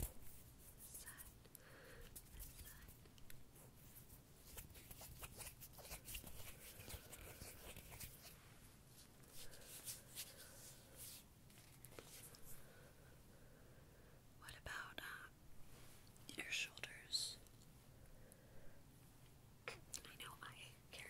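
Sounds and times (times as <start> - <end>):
scratchy rustling and brushing: 0.0 - 1.4, 2.1 - 12.6.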